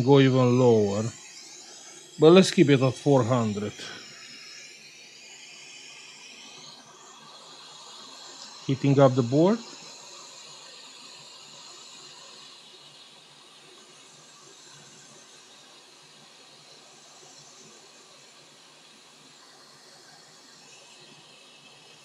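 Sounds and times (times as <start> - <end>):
hot air blower hissing: 0.0 - 22.0.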